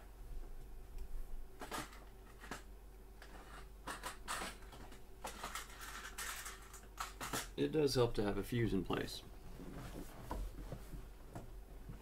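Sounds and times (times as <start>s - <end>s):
low steady hum: 0.0s - 12.0s
small objects clicking and rustling: 1.6s - 7.5s.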